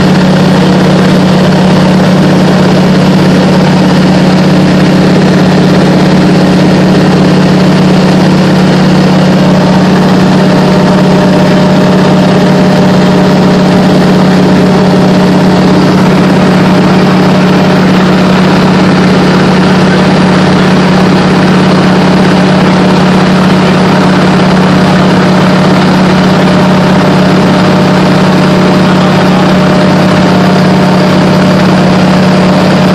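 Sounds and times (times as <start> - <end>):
plane engine and propeller droning: 0.0 - 32.9.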